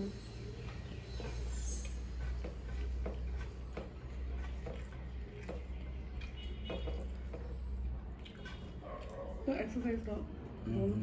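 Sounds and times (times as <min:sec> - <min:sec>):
chewing clicks and smacks: 0:04.4 - 0:09.4.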